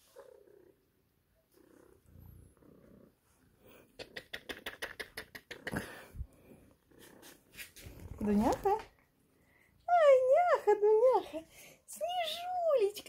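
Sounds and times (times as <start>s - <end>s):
cat purring: 0.0s - 9.8s
hand rubbing fur: 5.6s - 8.8s.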